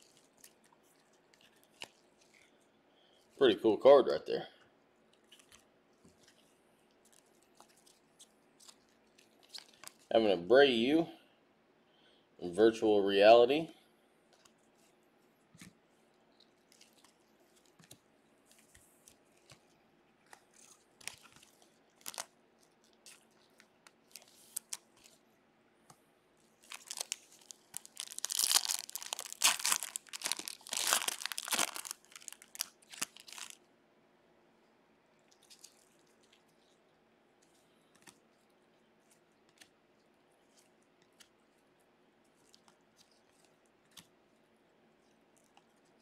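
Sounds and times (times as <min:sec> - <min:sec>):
wrapper crinkling and tearing: 0:00.0 - 0:02.6, 0:07.0 - 0:10.1, 0:16.3 - 0:18.0, 0:20.2 - 0:25.2, 0:26.4 - 0:33.7, 0:35.3 - 0:36.8
cards rustling and clicking: 0:16.4 - 0:25.2, 0:26.6 - 0:33.6, 0:37.4 - 0:38.3.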